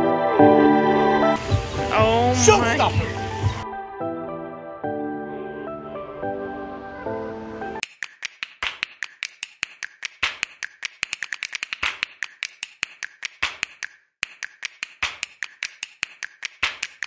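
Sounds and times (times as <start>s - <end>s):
rapid sharp clicks: 7.8s - 17.0s.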